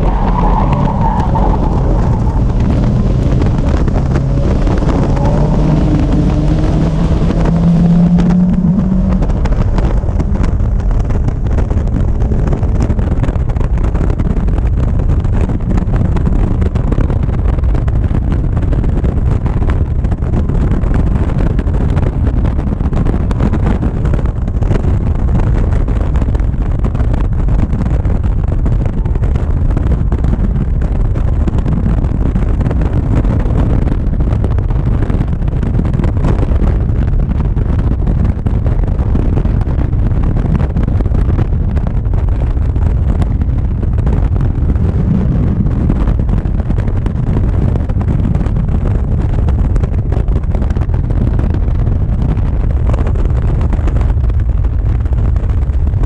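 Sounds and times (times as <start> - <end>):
race car engine accelerating: 0.0 - 14.0
wind buffeting: 0.0 - 56.0.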